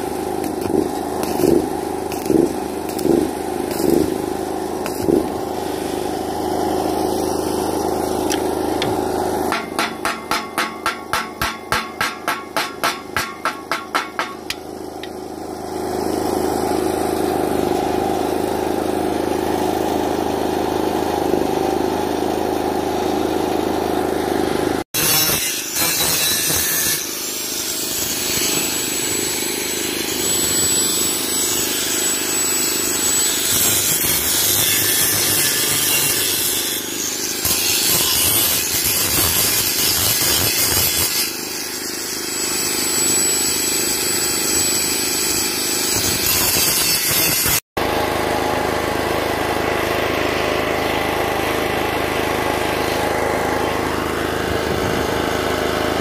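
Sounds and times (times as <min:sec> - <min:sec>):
angle grinder cutting steel pipe: 0:00.0 - 0:19.5, 0:25.0 - 0:47.6
hammer tapping on steel: 0:08.8 - 0:15.2
low machine drone: 0:48.0 - 0:56.0.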